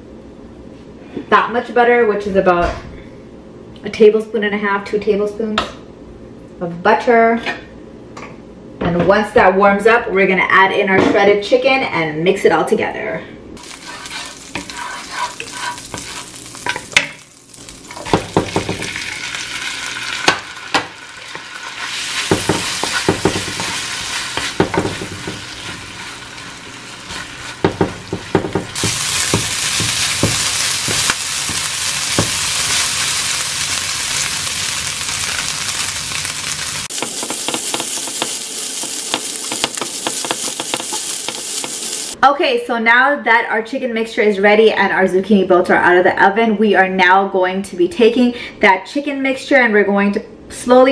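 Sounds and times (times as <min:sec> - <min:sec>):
chicken sizzling in frying pan: 0:13.6 - 0:42.2
wooden spoon knocking on pan: 0:18.0 - 0:19.0, 0:22.3 - 0:23.8, 0:24.4 - 0:25.5, 0:27.6 - 0:32.4, 0:36.9 - 0:41.9.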